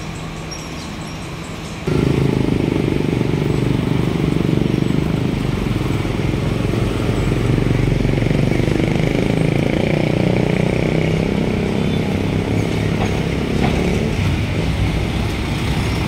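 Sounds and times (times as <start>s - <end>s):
motorcycle engine running: 1.9s - 16.0s
small truck engine running: 1.9s - 16.0s.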